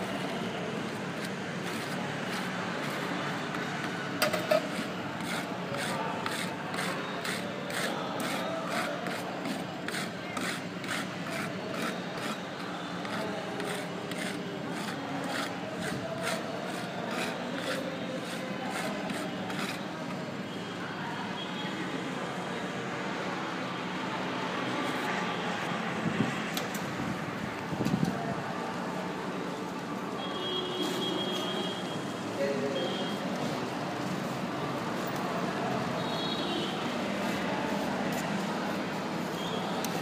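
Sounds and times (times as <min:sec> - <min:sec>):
metal spatulas scraping cold plate: 0:04.2 - 0:19.9.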